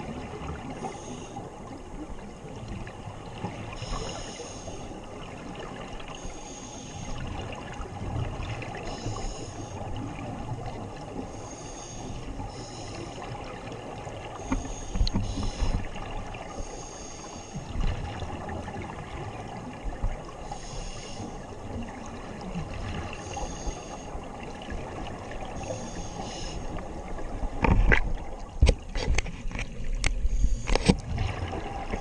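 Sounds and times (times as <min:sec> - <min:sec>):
low watery rumble: 0:00.0 - 0:32.0
scuba regulator hissing inhalations: 0:03.8 - 0:04.8, 0:11.3 - 0:13.2, 0:14.4 - 0:15.8, 0:16.5 - 0:17.6, 0:20.5 - 0:21.4, 0:25.6 - 0:26.7
exhaled bubbles rumbling: 0:26.8 - 0:32.0.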